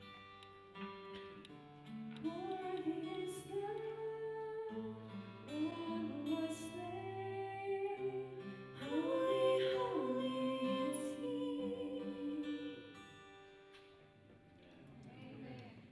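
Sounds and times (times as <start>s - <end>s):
strummed acoustic guitar: 0.0s - 14.8s
women singing in harmony: 2.3s - 13.0s.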